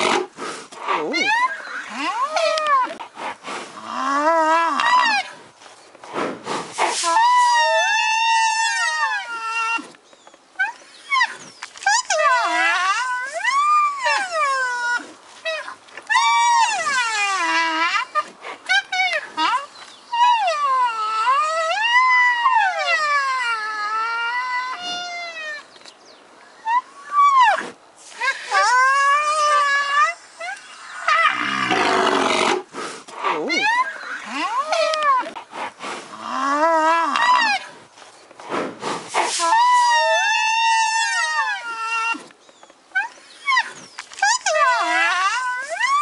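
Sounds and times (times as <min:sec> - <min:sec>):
rhinoceros high-pitched calls: 0:00.9 - 0:03.0, 0:06.8 - 0:09.8, 0:10.6 - 0:25.7, 0:26.6 - 0:35.4, 0:39.1 - 0:42.2, 0:42.9 - 0:46.0
rhinoceros breathy snort: 0:02.9 - 0:03.9, 0:32.0 - 0:33.5, 0:35.2 - 0:36.3, 0:38.4 - 0:39.4
rhinoceros high-pitched whine: 0:39.2 - 0:42.2.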